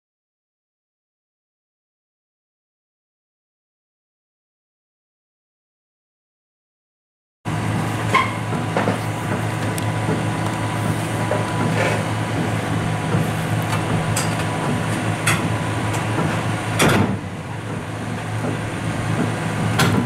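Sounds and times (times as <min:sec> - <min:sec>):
diesel engine idling: 0:07.5 - 0:20.0.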